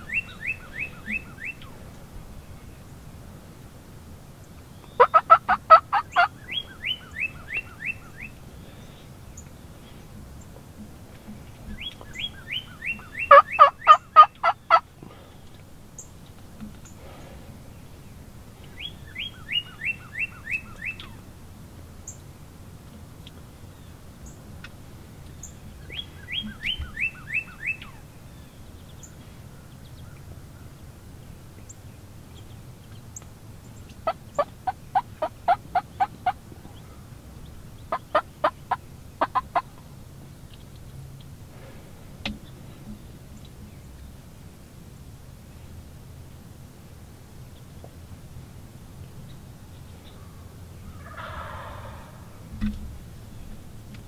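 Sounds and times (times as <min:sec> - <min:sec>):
turkey gobbling: 0:00.0 - 0:01.8, 0:04.8 - 0:09.0, 0:11.7 - 0:15.6, 0:18.7 - 0:21.2, 0:25.8 - 0:28.0, 0:33.9 - 0:39.9, 0:50.2 - 0:52.5.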